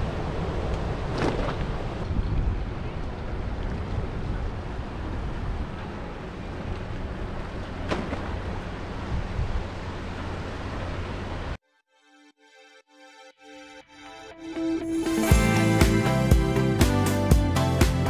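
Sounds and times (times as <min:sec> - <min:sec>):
wind rushing over microphone: 0:00.0 - 0:07.6, 0:08.9 - 0:10.1.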